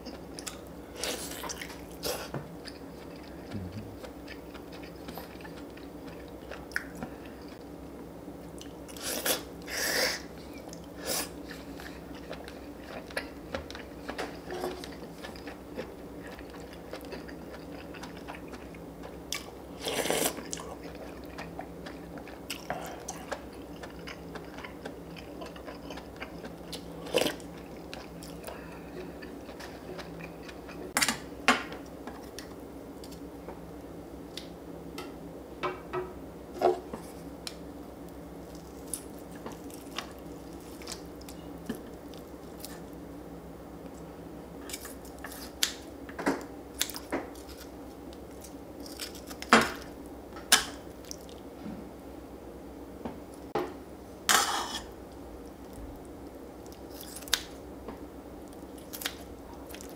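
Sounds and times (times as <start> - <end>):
quiet chewing: 0.0 - 7.8, 8.4 - 31.0, 36.7 - 43.0, 54.4 - 59.9
low steady hum: 0.0 - 59.9.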